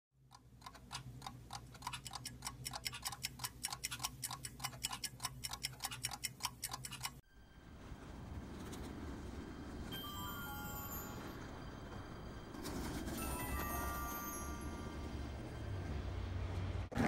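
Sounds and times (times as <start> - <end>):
clocks ticking: 0.2 - 7.2.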